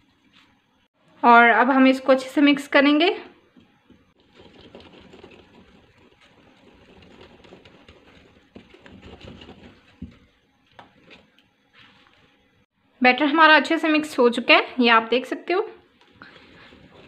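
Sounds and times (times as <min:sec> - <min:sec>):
whisk beating batter in glass bowl: 0:04.2 - 0:10.2.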